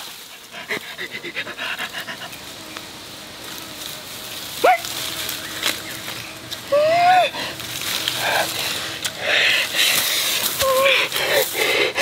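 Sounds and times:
panting breaths: 0.0s - 2.5s, 7.3s - 12.0s.

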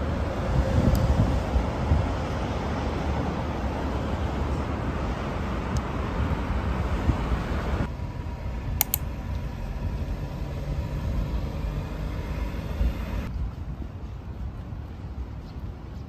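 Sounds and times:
road traffic rumble: 0.0s - 16.0s
sharp ticks: 8.8s - 9.4s.

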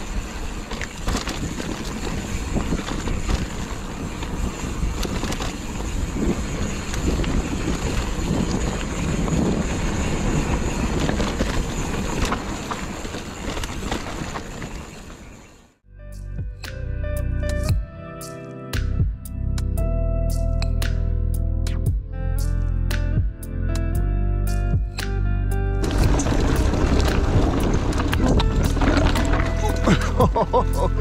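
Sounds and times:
bike clattering over rough ground: 0.0s - 15.7s, 25.8s - 31.0s
wind rush on microphone: 0.0s - 15.7s, 25.8s - 31.0s.

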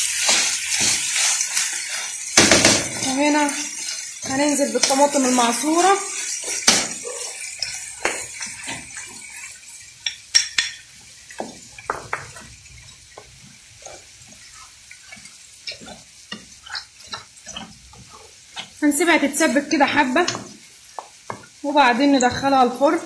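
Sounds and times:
faint sizzle: 0.0s - 23.0s
spoon knocking against metal pan: 11.4s - 12.4s.

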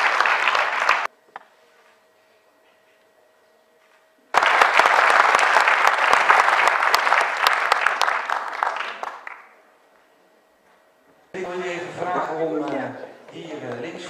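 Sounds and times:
audience applauding: 0.0s - 1.1s, 4.3s - 9.6s.

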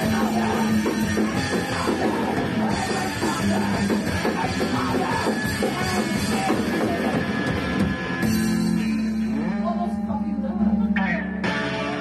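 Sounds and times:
distorted guitar chord ringing: 0.0s - 12.0s
drums: 0.0s - 12.0s
punk band playing: 0.0s - 12.0s.

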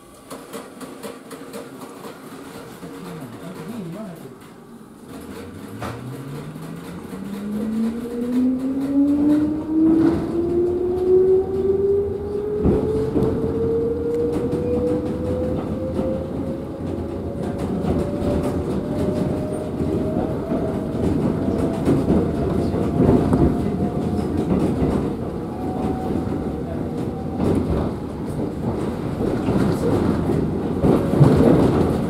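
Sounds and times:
wheels knocking over rail joints: 0.2s - 10.9s
train motor whine: 5.0s - 20.7s.

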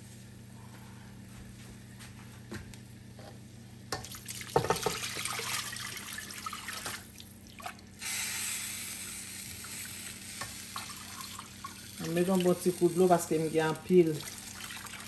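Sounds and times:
water running into a pot: 4.0s - 15.0s.

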